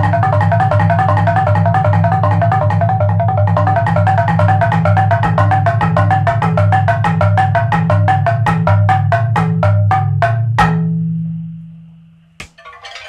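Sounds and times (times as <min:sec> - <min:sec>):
mallet striking wooden slats: 0:12.4 - 0:13.0.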